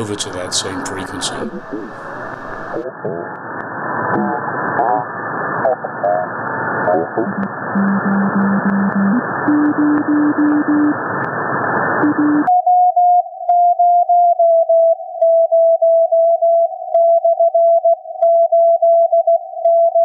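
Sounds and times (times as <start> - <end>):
radio band hiss: 0.0 - 12.4
morse code tone: 7.3 - 10.9, 12.0 - 12.9.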